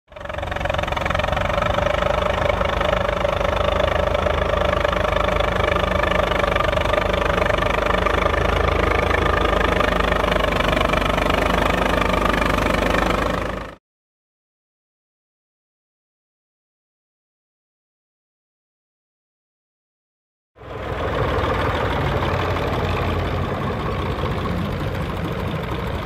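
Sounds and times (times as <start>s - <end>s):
tractor engine under load: 0.1s - 13.8s, 20.6s - 26.0s.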